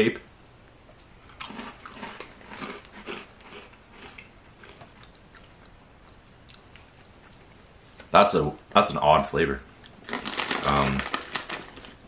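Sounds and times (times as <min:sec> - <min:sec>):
chewing crunchy snack: 0:00.9 - 0:05.8, 0:09.8 - 0:11.9.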